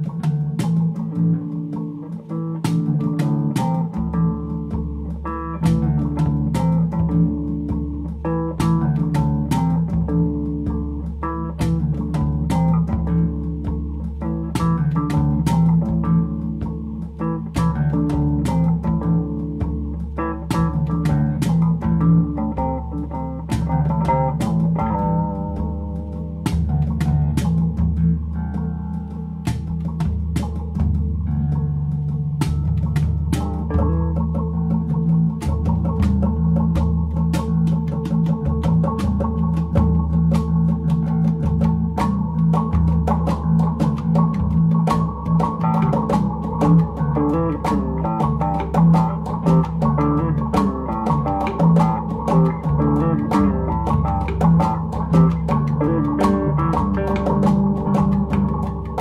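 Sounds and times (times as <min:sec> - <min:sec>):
bass: 0:00.0 - 0:59.0
plucked guitar: 0:00.0 - 0:59.0
drum beat: 0:29.4 - 0:59.0.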